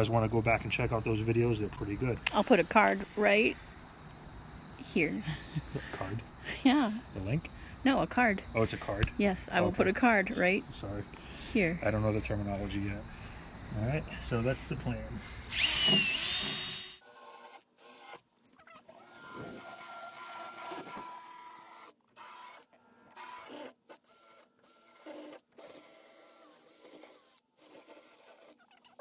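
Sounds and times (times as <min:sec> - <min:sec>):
cordless drill grinding foam: 0:02.4 - 0:03.8, 0:15.5 - 0:29.0.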